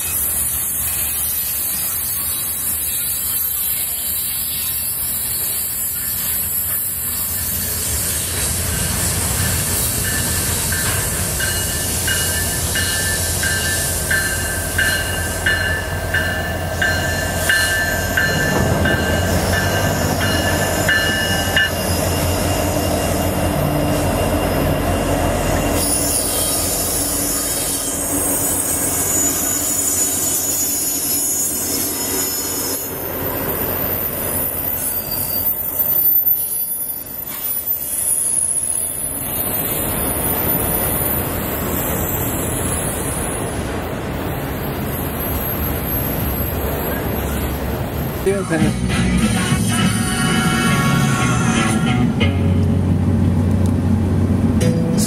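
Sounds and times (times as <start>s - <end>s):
diesel locomotive engine rumbling: 0.0s - 55.0s
rail cars rolling on rails: 0.0s - 55.0s
train bell ringing: 8.6s - 42.7s.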